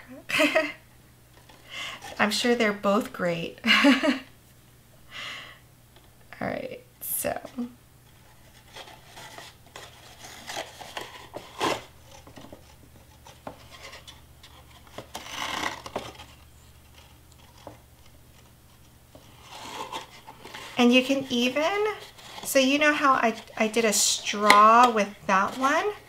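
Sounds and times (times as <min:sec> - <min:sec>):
twine rubbing on cardboard box: 0:19.1 - 0:23.8.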